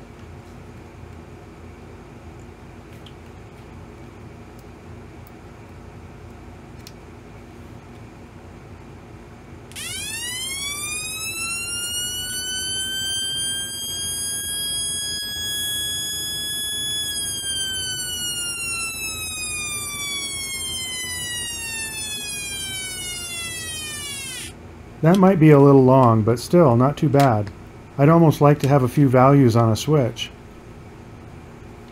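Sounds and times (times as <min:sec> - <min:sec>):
electronic siren wail: 0:09.7 - 0:24.6.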